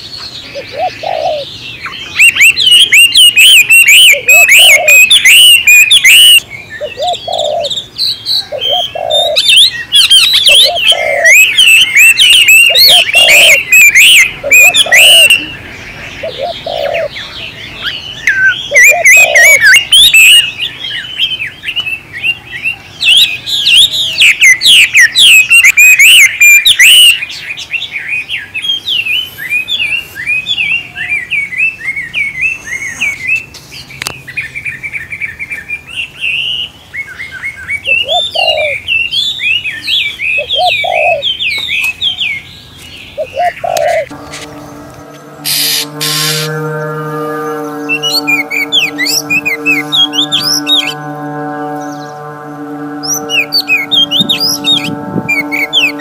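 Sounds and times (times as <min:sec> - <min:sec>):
songbirds chirping: 0:00.0 - 0:56.0
dove cooing: 0:00.5 - 0:01.5, 0:02.2 - 0:07.7, 0:08.5 - 0:15.5, 0:16.2 - 0:17.2, 0:18.7 - 0:20.5, 0:37.9 - 0:38.8, 0:40.4 - 0:41.3, 0:43.2 - 0:56.0.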